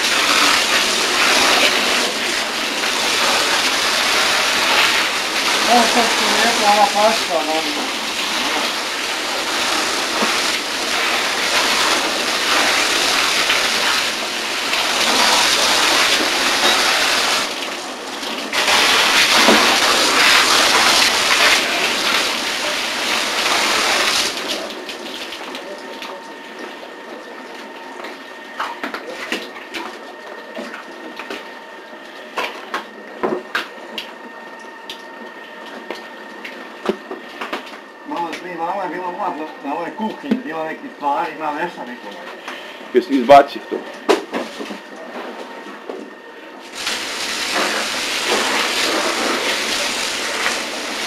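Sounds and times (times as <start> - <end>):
fire hose spraying water: 0.0 - 26.2, 46.6 - 51.0.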